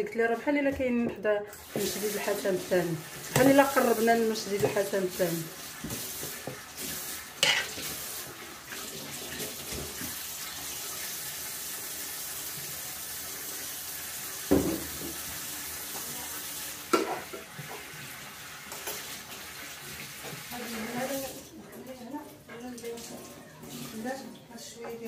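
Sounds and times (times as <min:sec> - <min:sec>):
metal spoon scraping ceramic dish: 0:07.4 - 0:07.7.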